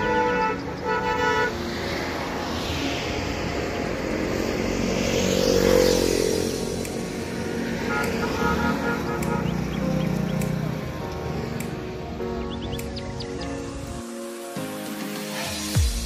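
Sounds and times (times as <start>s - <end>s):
vehicle horn toots: 0.0s - 1.6s, 7.9s - 9.6s
vehicle passing by: 1.5s - 11.6s.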